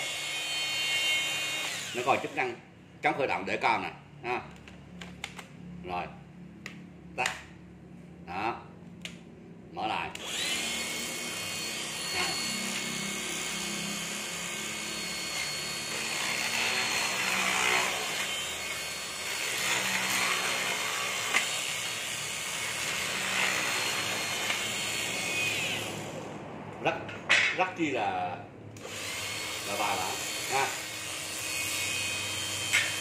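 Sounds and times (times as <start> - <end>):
metal shear high whine: 0.0 - 2.6, 10.2 - 26.3, 28.8 - 33.0
shear cutting sheet metal: 0.0 - 2.6, 10.2 - 26.1, 28.8 - 33.0.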